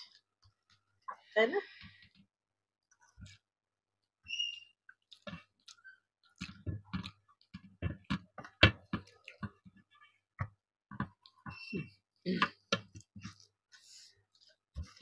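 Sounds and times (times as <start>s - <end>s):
chewing and lip-smacking: 4.8s - 7.7s, 8.5s - 10.2s.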